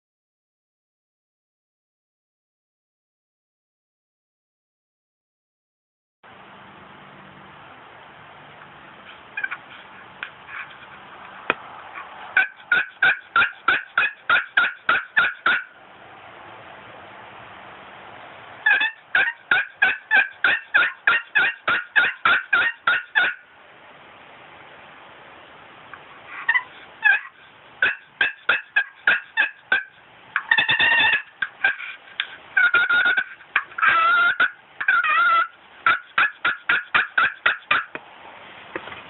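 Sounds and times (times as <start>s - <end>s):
turkey yelping: 9.4s - 9.8s, 12.3s - 15.8s, 18.6s - 23.4s, 26.3s - 38.0s.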